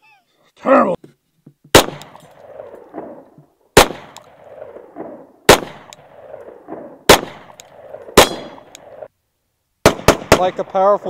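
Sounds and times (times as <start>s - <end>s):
pistol shots with echo: 1.7s - 3.2s, 3.8s - 9.1s, 9.8s - 10.8s.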